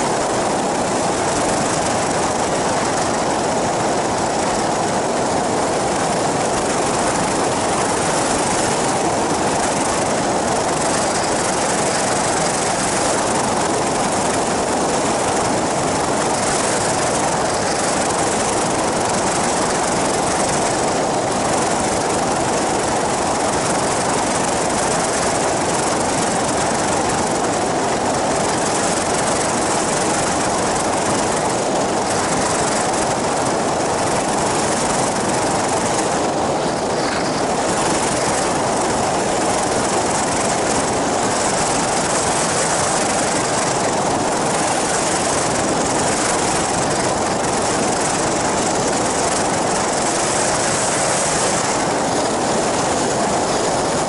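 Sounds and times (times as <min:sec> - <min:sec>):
pusher engine and propeller running: 0:00.0 - 0:54.0.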